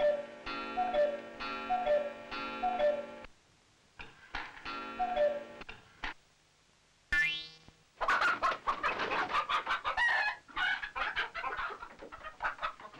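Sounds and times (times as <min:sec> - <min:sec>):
hens clucking and cackling: 0:08.0 - 0:12.9.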